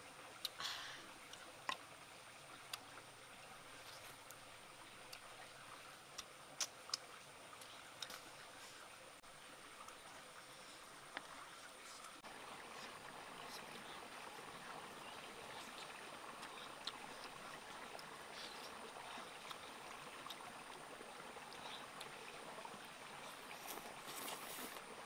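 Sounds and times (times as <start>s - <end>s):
stream water rushing: 0.0s - 25.0s
eating smacks and clicks: 6.1s - 8.2s.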